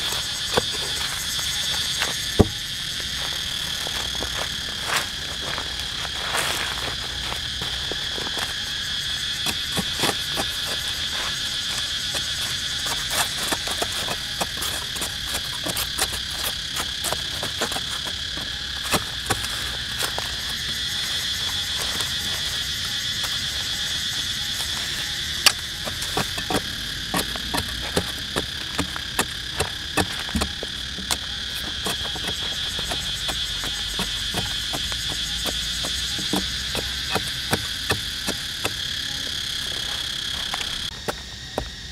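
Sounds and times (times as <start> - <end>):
crickets chirping: 0.0 - 41.9
machete digging into sandy soil: 25.4 - 39.0.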